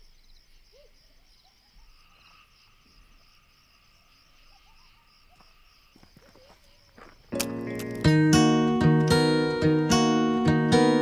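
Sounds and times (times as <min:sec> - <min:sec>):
insects trilling: 0:00.0 - 0:08.2
cricket chirps: 0:00.0 - 0:09.4.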